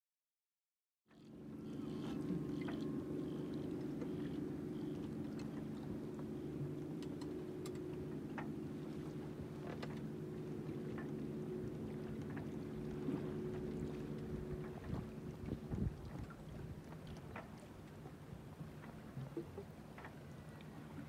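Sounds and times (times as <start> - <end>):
boat engine humming: 1.1 - 21.0
faint clicks: 3.8 - 5.7, 6.8 - 8.5, 18.8 - 21.0.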